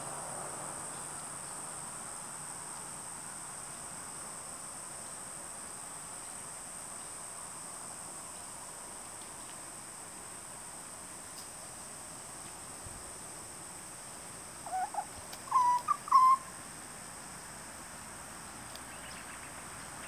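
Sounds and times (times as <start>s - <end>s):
birds whistling calls: 14.7s - 16.5s.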